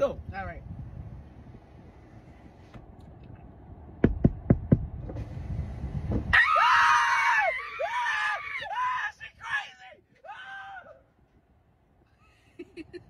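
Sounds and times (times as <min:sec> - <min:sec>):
knuckles knocking on car window: 0:04.0 - 0:05.2
woman screaming: 0:06.4 - 0:09.0
man screaming: 0:06.4 - 0:11.0.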